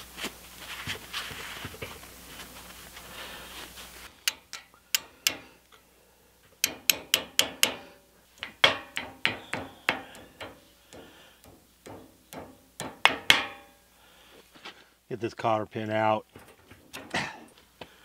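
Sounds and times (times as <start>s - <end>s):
hammer tapping steel punch: 4.2s - 5.6s, 6.6s - 13.8s.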